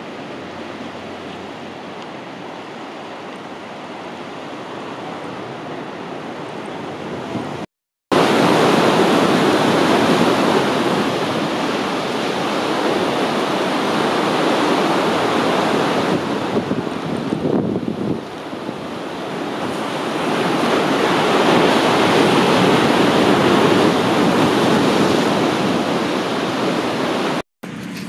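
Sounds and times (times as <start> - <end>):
sea waves against breakwater: 0.0 - 28.0.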